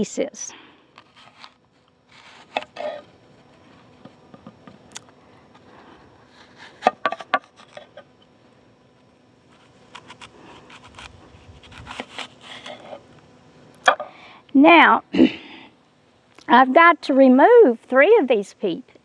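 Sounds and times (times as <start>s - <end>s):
knife slicing apple: 1.0s - 3.1s, 9.5s - 13.1s.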